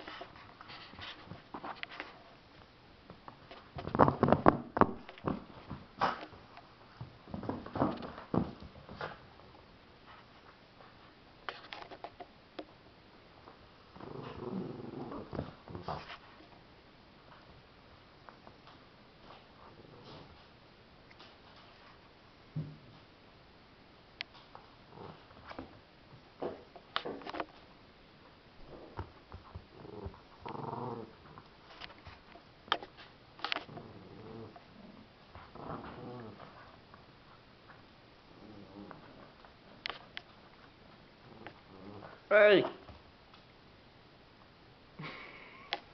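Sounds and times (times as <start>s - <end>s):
small dog growling: 13.9s - 16.1s, 24.9s - 25.4s, 29.7s - 31.5s, 33.6s - 36.7s, 38.3s - 39.4s, 41.2s - 42.3s.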